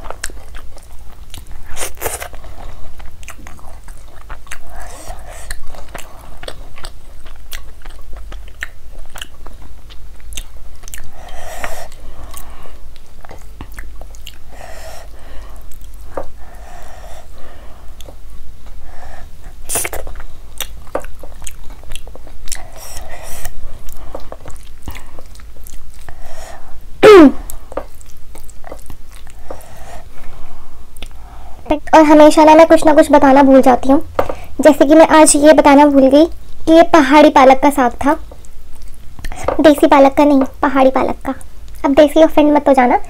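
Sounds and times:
wet chewing: 0.0 - 18.8, 19.5 - 26.4, 27.4 - 30.2, 30.9 - 31.2, 38.2 - 39.6
lip smacks and mouth clicks: 3.0 - 11.1, 11.9 - 14.5, 19.7 - 26.1, 27.5 - 29.6, 31.0 - 31.2.

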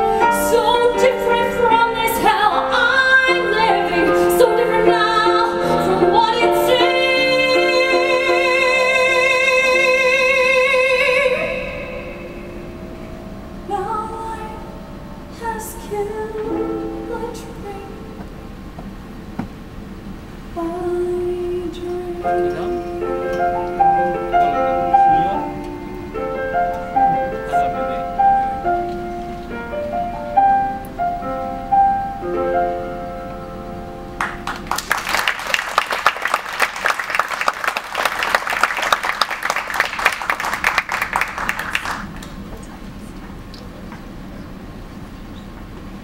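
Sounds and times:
piano melody: 0.0 - 46.0
audience applause: 34.2 - 42.7.

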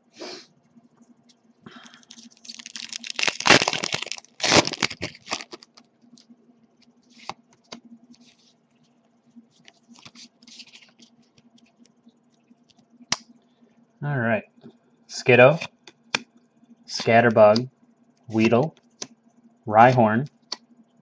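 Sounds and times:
foil wrapper tearing and crinkling: 2.0 - 5.8.

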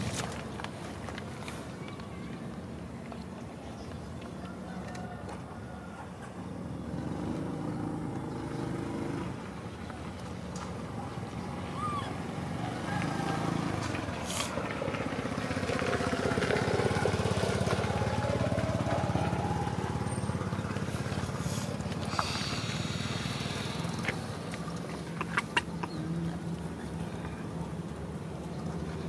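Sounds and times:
small engine running: 13.0 - 25.1.

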